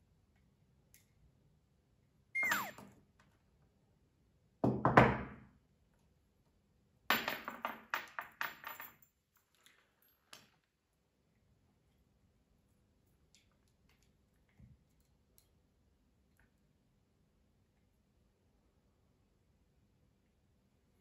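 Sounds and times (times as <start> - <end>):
short squeak falling in pitch: 2.4 - 2.8.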